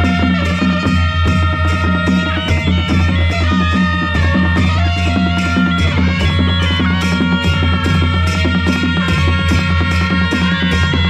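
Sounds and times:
barrel drums: 0:00.0 - 0:11.0
cymbals clashing: 0:00.0 - 0:11.0
kettle drum beaten with sticks: 0:00.0 - 0:11.0
reedy wind melody: 0:00.0 - 0:11.0.

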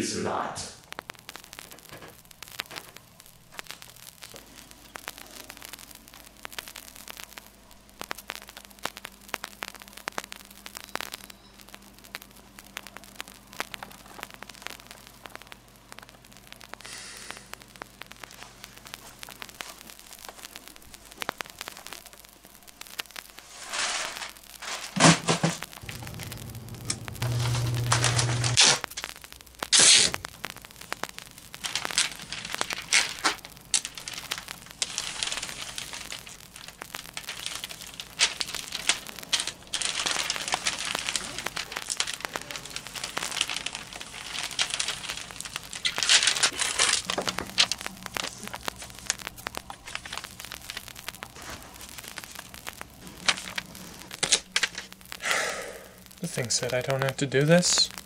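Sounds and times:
plastic sheeting crinkling: 0:00.8 - 0:55.2, 0:56.0 - 0:58.0
tape ripping off roll: 0:23.4 - 0:55.0.

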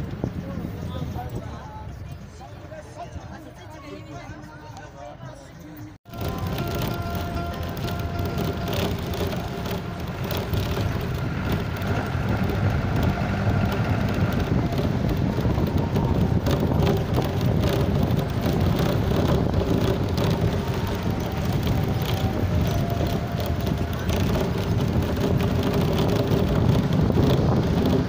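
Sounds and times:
vehicle rumbling on gravel: 0:06.1 - 0:28.0.

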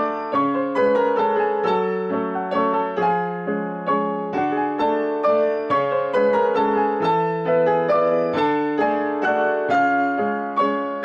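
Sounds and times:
solo piano piece: 0:00.0 - 0:11.0.

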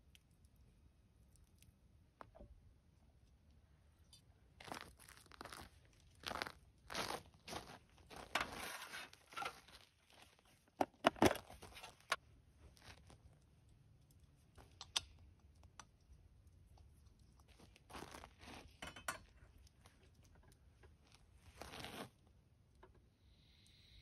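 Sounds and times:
crinkling and rustling: 0:04.6 - 0:14.8, 0:16.9 - 0:22.3
sharp clicks and taps: 0:14.1 - 0:16.1.

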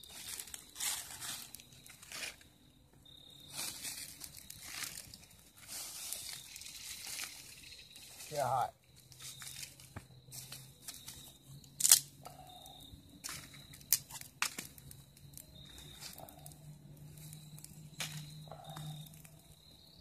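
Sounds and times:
sticks rustling: 0:00.0 - 0:02.5, 0:03.4 - 0:12.5
fire crackling and snapping: 0:00.0 - 0:20.0.

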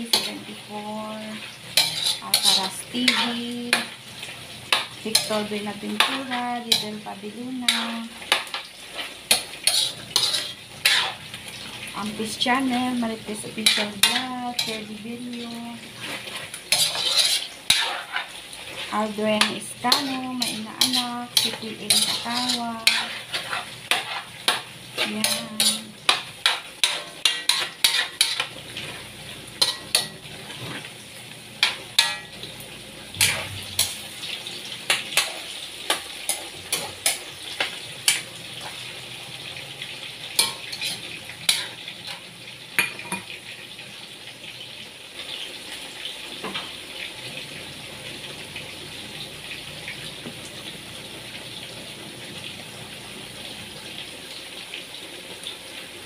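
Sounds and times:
chicken sizzling: 0:00.0 - 0:56.0
spatula clanking on metal wok: 0:01.8 - 0:03.9, 0:07.6 - 0:08.7, 0:09.3 - 0:11.2, 0:19.4 - 0:28.5, 0:29.6 - 0:30.2, 0:31.6 - 0:32.3, 0:33.2 - 0:34.0, 0:40.4 - 0:41.8.

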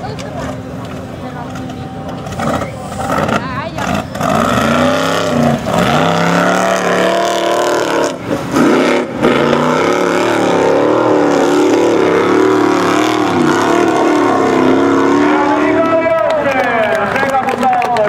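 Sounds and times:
buggy engine revving hard: 0:02.3 - 0:16.2.

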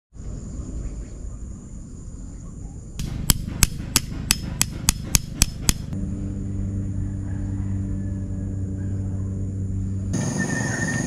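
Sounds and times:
steady low hum: 0:00.2 - 0:11.0
hammer striking tent peg: 0:03.0 - 0:06.0.

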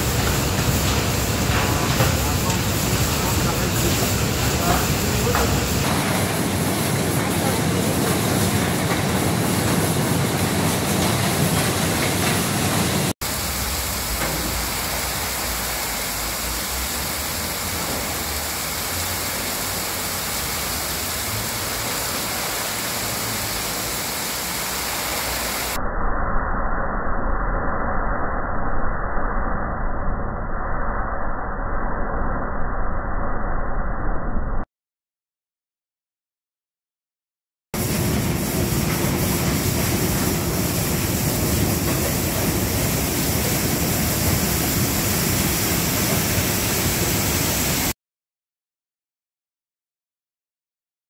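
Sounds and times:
water spray rushing hiss: 0:00.0 - 0:25.8, 0:37.8 - 0:48.0.

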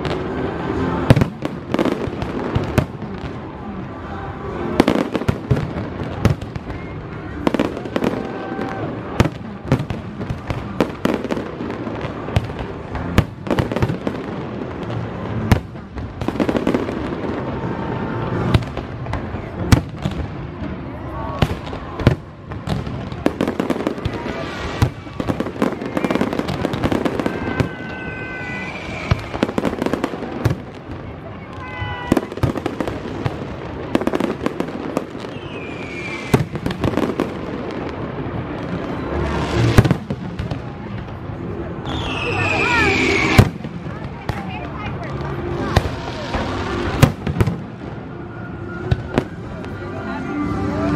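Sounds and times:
firework bangs: 0:00.0 - 0:50.9
firework whistle falling in pitch: 0:27.0 - 0:29.5
continuous rumble: 0:28.9 - 0:41.9, 0:43.4 - 0:50.9.

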